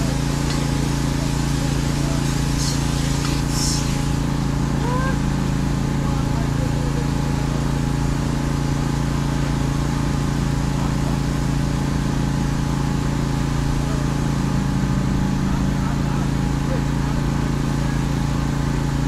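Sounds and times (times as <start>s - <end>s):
water spray hiss: 0.0s - 5.5s
pressure washer engine drone: 0.0s - 19.0s.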